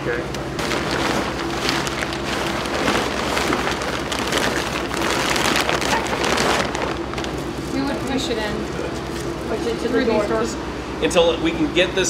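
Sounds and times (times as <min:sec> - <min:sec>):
steady low hum: 0:00.0 - 0:12.0
plastic bag crinkling: 0:00.6 - 0:10.0.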